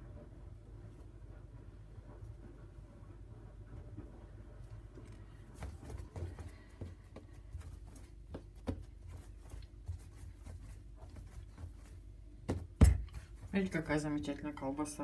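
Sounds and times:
dough tapping on countertop: 12.4 - 13.5.

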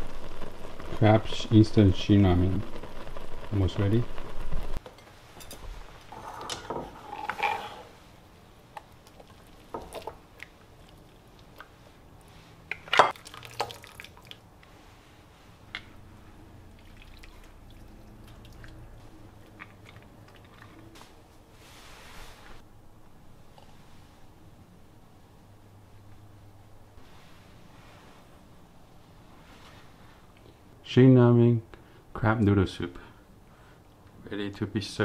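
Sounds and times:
broth dripping: 16.2 - 21.1.

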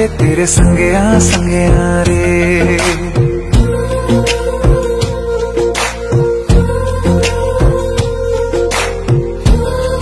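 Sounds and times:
film love song instrumental: 0.0 - 10.0
low drum thumps: 0.2 - 5.3.

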